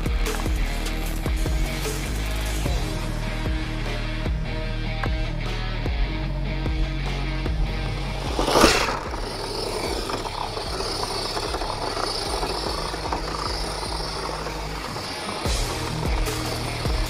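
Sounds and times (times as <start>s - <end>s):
rc car electric motor running: 0.0s - 3.0s, 7.7s - 17.0s.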